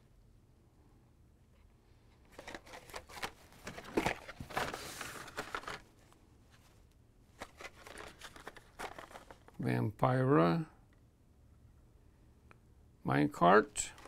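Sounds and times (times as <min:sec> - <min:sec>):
plastic blister packs rustling: 0:02.3 - 0:06.0, 0:07.4 - 0:09.6.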